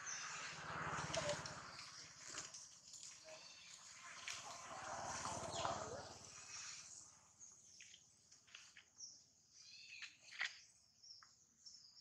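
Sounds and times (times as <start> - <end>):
insects droning: 0.0 - 8.7
bird calls chirping: 3.0 - 3.9.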